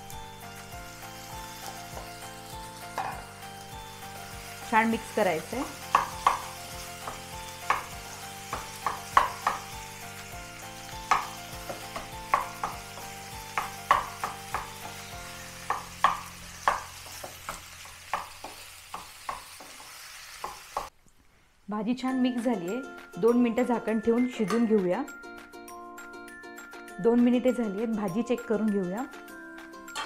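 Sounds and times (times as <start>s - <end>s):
frying hiss: 0.0s - 21.7s.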